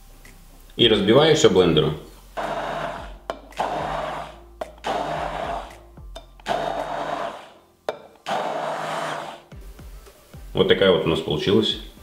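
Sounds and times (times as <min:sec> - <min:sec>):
immersion blender whirring: 0:02.4 - 0:05.8, 0:06.4 - 0:07.6, 0:08.2 - 0:09.6.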